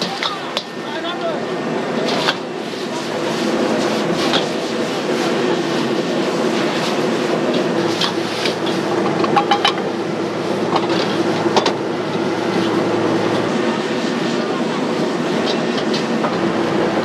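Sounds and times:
gas burner running: 0:00.0 - 0:17.0.

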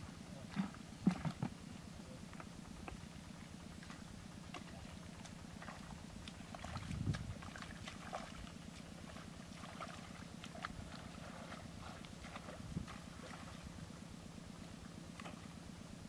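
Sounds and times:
steady low drone: 0:00.0 - 0:16.0
footsteps squelching in mud: 0:03.8 - 0:13.7.

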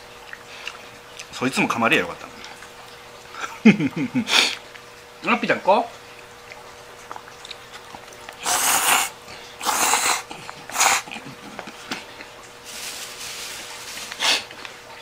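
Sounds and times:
person slurping noodles: 0:08.4 - 0:11.3, 0:14.0 - 0:14.5.

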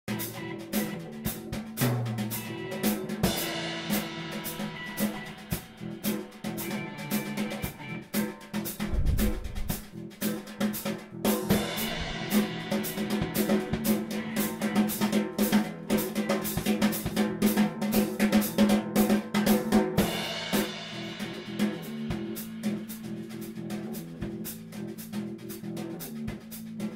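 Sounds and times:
band music: 0:00.1 - 0:26.9
snare and bass drum hits: 0:08.7 - 0:22.8.

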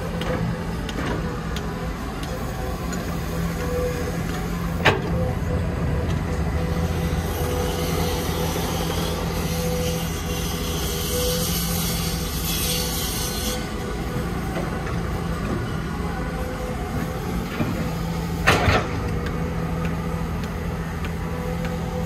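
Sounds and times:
diesel engine running: 0:00.0 - 0:12.3.

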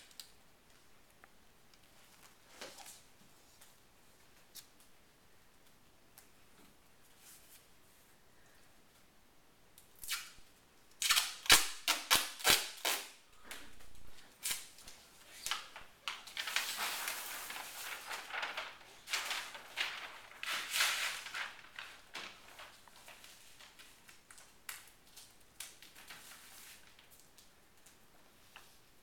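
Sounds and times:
duct tape ripping: 0:10.0 - 0:10.4, 0:11.0 - 0:13.2.

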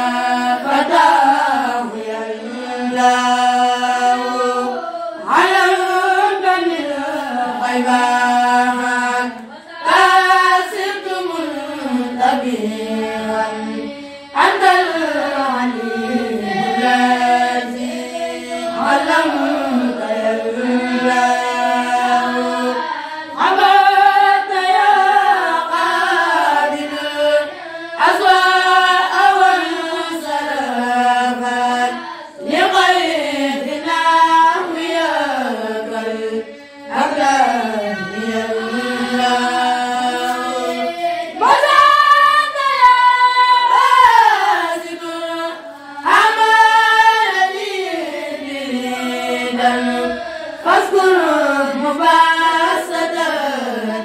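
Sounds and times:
boys chanting together: 0:00.0 - 0:54.0.

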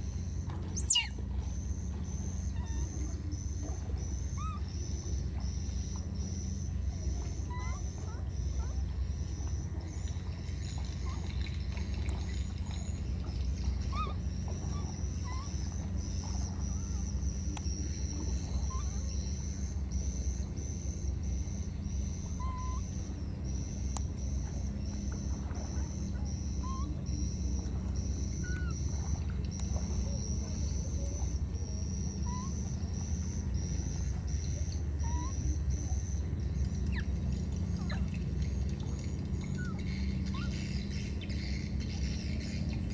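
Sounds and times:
short chirps: 0:00.7 - 0:01.2
high pulsing animal call: 0:00.7 - 0:01.3, 0:02.0 - 0:05.0, 0:13.6 - 0:19.8, 0:22.0 - 0:23.7, 0:25.7 - 0:29.3, 0:29.9 - 0:42.9.

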